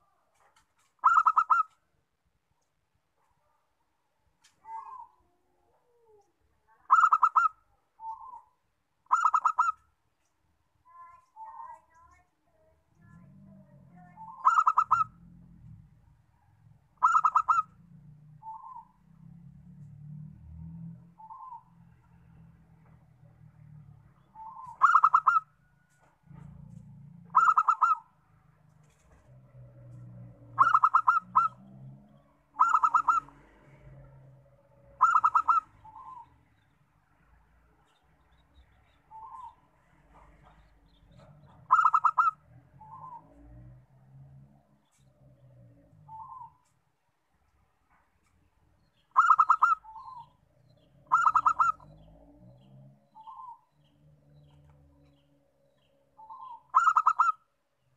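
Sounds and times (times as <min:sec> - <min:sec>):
dove cooing: 0:01.0 - 0:01.8, 0:04.6 - 0:08.5, 0:09.1 - 0:09.8, 0:13.1 - 0:15.9, 0:17.0 - 0:17.8, 0:24.4 - 0:25.5, 0:27.3 - 0:28.1, 0:29.9 - 0:31.6, 0:32.5 - 0:36.3, 0:40.2 - 0:43.5, 0:49.2 - 0:53.6, 0:56.2 - 0:57.4.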